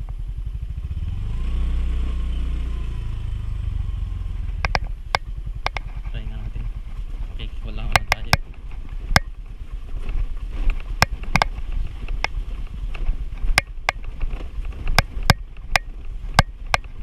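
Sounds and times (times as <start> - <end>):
motor scooter engine rumble: 0.0 - 17.0
scooter knocking and rattling: 4.4 - 17.0.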